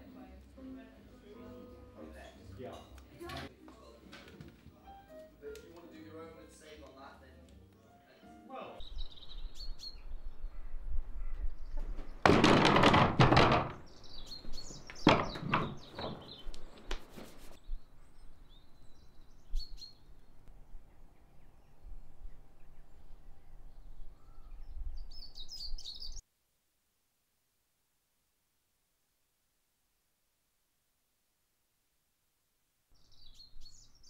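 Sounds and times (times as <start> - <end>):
small birds chirping: 8.1 - 12.2, 13.8 - 26.2, 33.0 - 34.0
heavy wooden door scraping floor: 11.8 - 16.5
sharp wooden knocks: 11.8 - 17.0.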